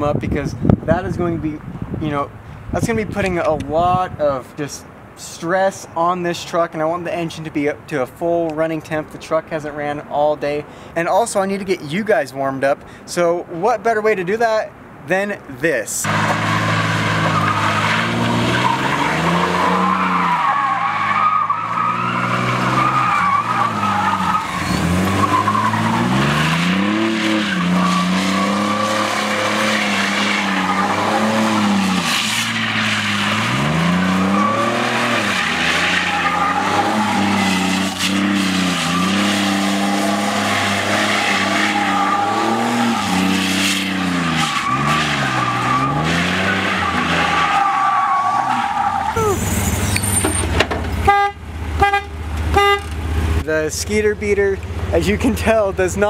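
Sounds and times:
tyres squealing: 0:16.1 - 0:50.6
engine revving hard: 0:21.0 - 0:32.4, 0:33.2 - 0:47.4.

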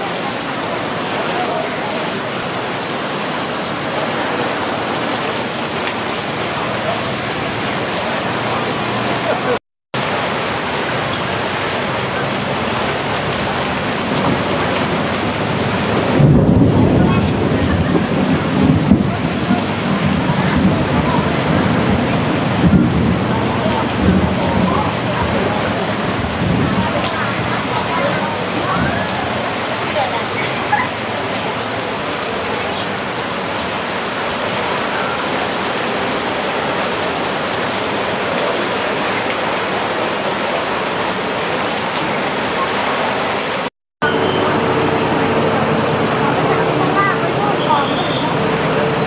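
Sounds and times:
floodwater rushing and splashing: 0:00.0 - 0:49.0
heavy low rumble: 0:11.4 - 0:29.9, 0:44.0 - 0:49.0.

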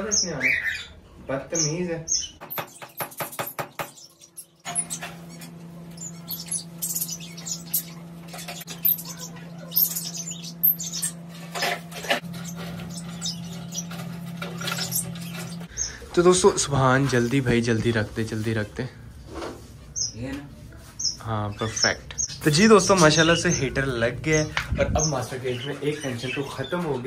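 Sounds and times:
small birds chirping: 0:00.0 - 0:27.0
steady low hum: 0:03.6 - 0:26.6.

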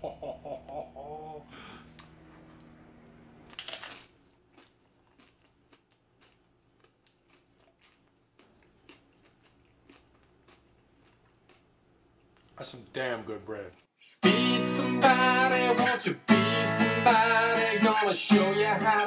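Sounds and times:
man humming mmm: 0:00.3 - 0:01.9
bread crunching bite: 0:03.5 - 0:12.6
crunchy chewing: 0:03.5 - 0:12.6.

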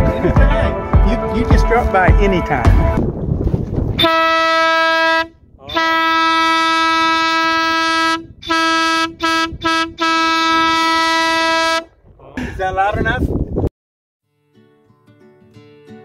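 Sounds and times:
vehicle horn blasts: 0:04.0 - 0:11.9.

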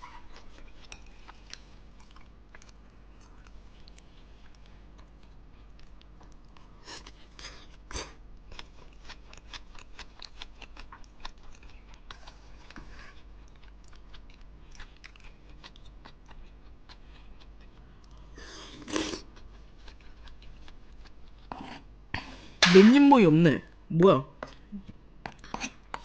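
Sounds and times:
close chewing with wet clicks: 0:00.3 - 0:07.8, 0:08.4 - 0:18.3, 0:19.3 - 0:21.5.

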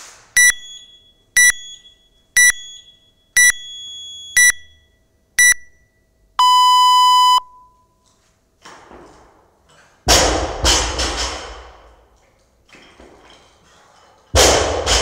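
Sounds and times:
timer beeps: 0:00.4 - 0:08.0
barbell plates crashing: 0:10.1 - 0:11.9, 0:12.9 - 0:15.0.

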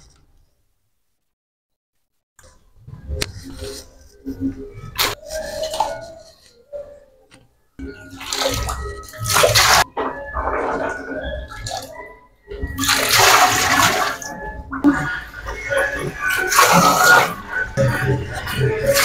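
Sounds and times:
shallow water splashing: 0:07.8 - 0:19.0.

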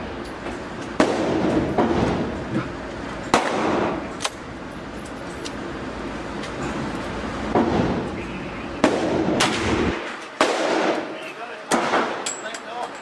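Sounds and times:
steady background noise: 0:00.0 - 0:13.0
gunshots indoors: 0:01.0 - 0:02.3, 0:03.3 - 0:04.4, 0:08.8 - 0:12.3.

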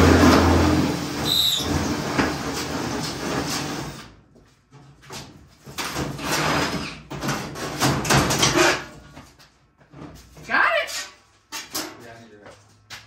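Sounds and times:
sheet metal scraping and rattling: 0:00.0 - 0:04.0, 0:05.6 - 0:09.2.

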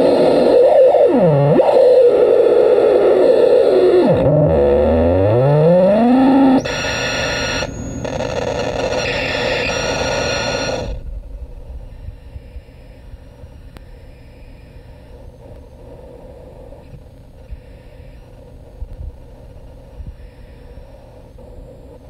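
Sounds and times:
harsh noisy synth tone sweeping: 0:00.0 - 0:11.0
buzzing drone: 0:00.0 - 0:22.0.

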